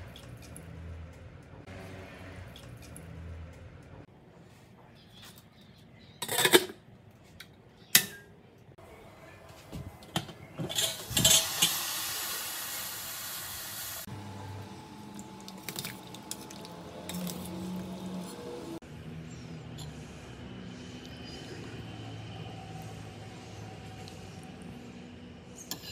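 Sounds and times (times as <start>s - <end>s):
metal pot lid clanking: 6.2s - 6.8s, 10.2s - 11.8s.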